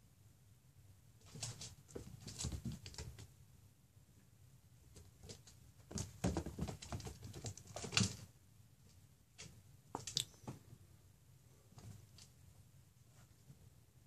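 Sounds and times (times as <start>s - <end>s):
cat paws scrabbling on hard floor: 1.2s - 3.3s, 4.9s - 8.3s.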